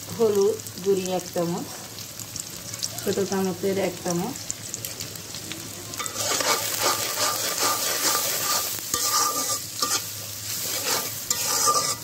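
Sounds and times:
oil sizzling: 0.0s - 12.0s
metal spatula scraping a pan: 6.0s - 12.0s.

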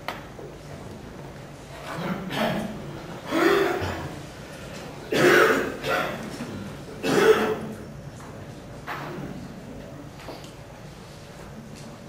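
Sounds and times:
person coughing: 2.0s - 4.2s, 5.1s - 6.2s, 7.0s - 7.7s.

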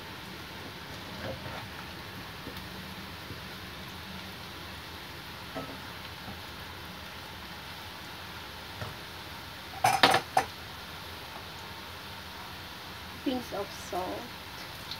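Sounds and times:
fries sizzling in oil: 0.0s - 14.9s.

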